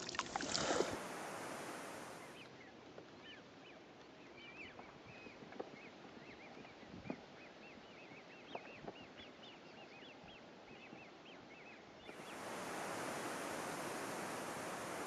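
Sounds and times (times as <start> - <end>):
steady rushing hiss: 0.0 - 2.4, 12.1 - 15.0.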